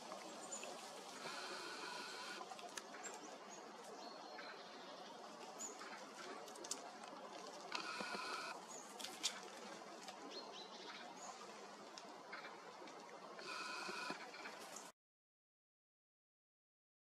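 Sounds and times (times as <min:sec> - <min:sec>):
birdsong chirps: 0:00.2 - 0:06.4
drawn-out bird call: 0:01.1 - 0:02.4, 0:07.7 - 0:08.6, 0:13.4 - 0:14.6
crow pecking on wooden log: 0:06.3 - 0:09.4.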